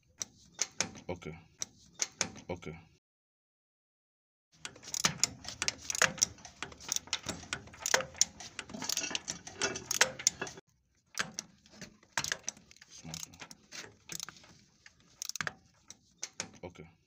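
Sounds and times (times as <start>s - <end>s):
metal bolt clicks and taps: 0.1s - 2.5s, 4.6s - 16.6s.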